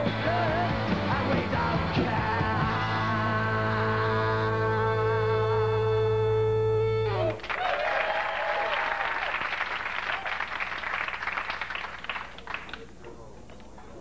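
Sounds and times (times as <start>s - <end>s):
audience applause: 7.3s - 12.8s.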